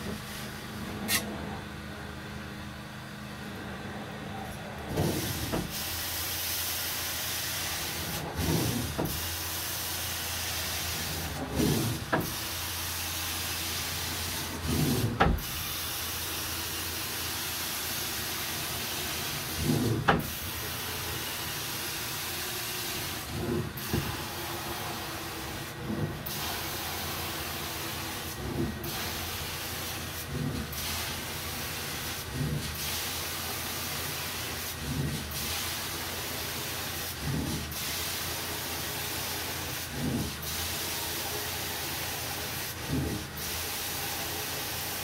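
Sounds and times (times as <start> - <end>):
cleaning wand swishing over carpet: 7.3 - 45.0.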